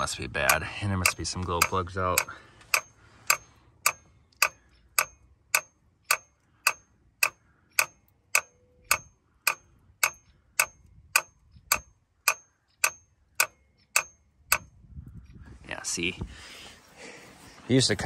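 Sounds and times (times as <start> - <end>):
relay clicking: 0.0 - 14.7.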